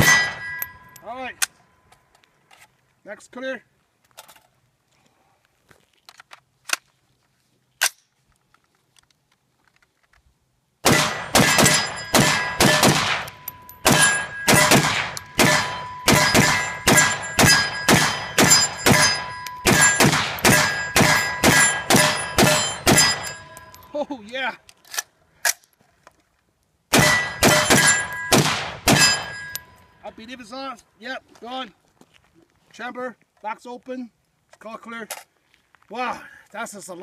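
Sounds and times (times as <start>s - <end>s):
faint rifle handling clicks: 5.7s - 10.4s
rifle shots in fast strings: 10.8s - 23.5s, 26.9s - 29.5s.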